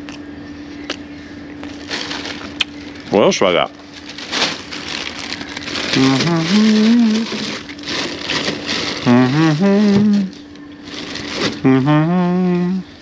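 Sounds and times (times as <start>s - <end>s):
plastic wrappers crinkling: 1.7s - 11.7s.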